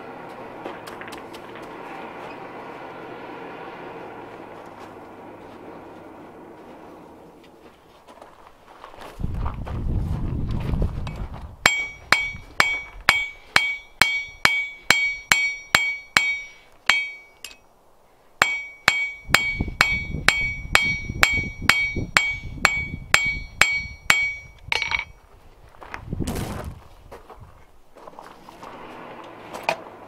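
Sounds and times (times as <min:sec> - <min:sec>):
hammer ringing on anvil: 0:11.7 - 0:17.6, 0:18.4 - 0:25.2.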